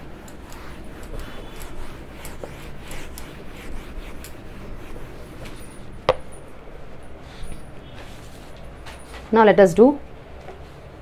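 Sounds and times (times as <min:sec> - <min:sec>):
duster rubbing whiteboard: 0:00.0 - 0:06.2.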